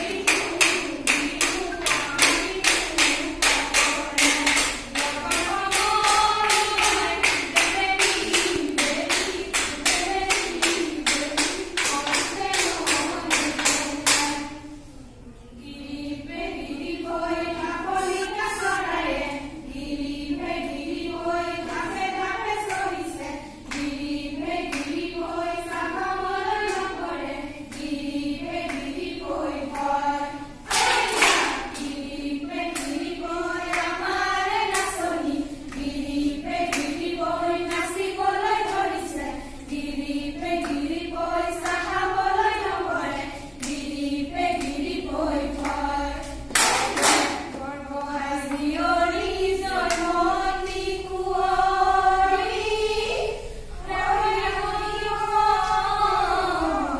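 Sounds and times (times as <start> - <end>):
hands clapping: 0.0 - 14.4, 23.7 - 24.0, 24.6 - 25.0, 30.7 - 31.9, 32.7 - 33.1, 33.7 - 35.1, 36.7 - 37.0, 40.6 - 40.9, 44.6 - 45.0, 45.6 - 47.6
women singing together: 0.0 - 56.9.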